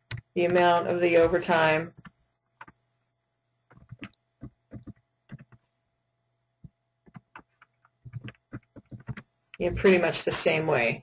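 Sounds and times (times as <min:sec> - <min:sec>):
computer keyboard keystrokes: 0:03.7 - 0:05.6, 0:07.0 - 0:09.6.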